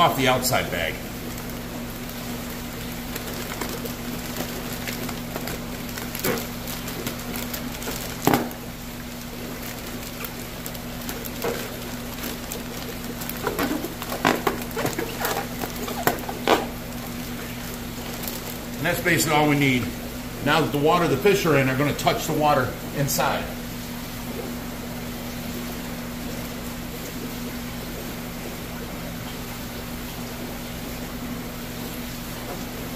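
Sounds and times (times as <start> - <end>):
steady low hum: 0.0 - 30.6
plastic bag crinkling: 1.1 - 19.3.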